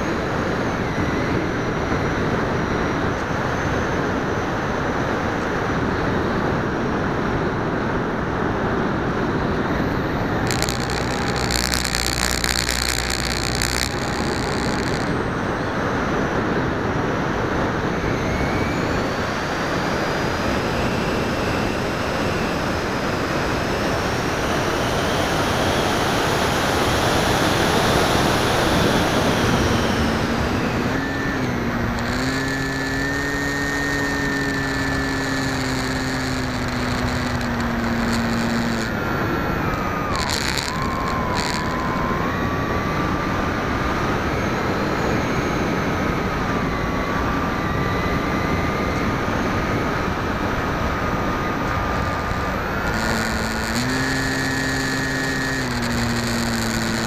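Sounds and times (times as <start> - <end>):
motor whine: 0.0 - 57.0
wind and propeller noise: 0.0 - 57.0
steady tones: 9.8 - 16.2, 27.0 - 42.6, 51.1 - 57.0.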